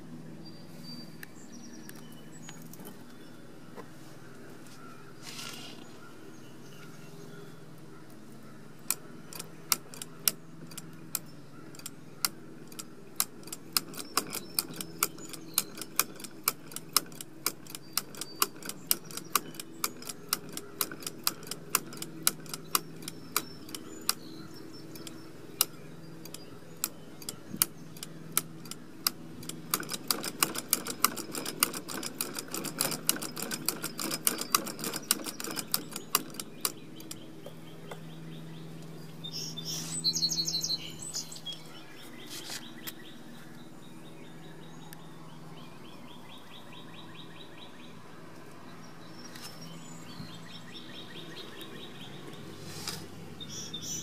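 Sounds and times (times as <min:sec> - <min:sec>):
hand-crank sewing machine clicking: 0:12.6 - 0:24.2, 0:24.9 - 0:37.2.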